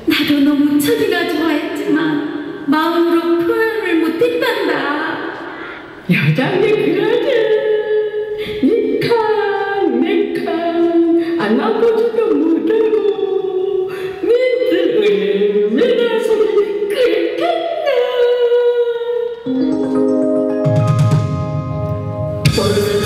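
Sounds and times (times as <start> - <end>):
instrumental music: 19.5 - 23.0
person singing unaccompanied: 22.5 - 23.0.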